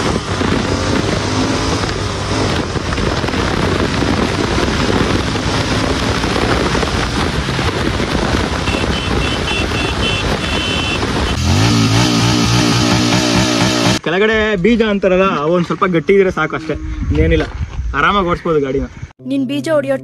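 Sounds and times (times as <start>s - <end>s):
wind rushing over microphone: 0.0s - 13.3s, 16.0s - 19.1s
motorcycle engine running: 0.0s - 14.0s.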